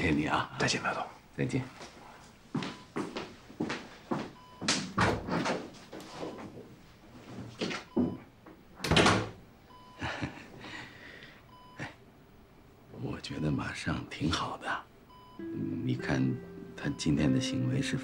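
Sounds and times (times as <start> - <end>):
door closing with knocks and thuds: 4.7 - 5.7, 8.8 - 9.4.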